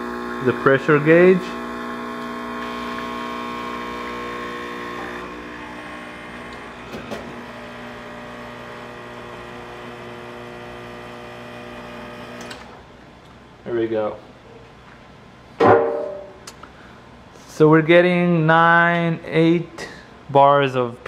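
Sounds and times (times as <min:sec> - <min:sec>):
espresso machine pump humming: 0:00.0 - 0:12.7.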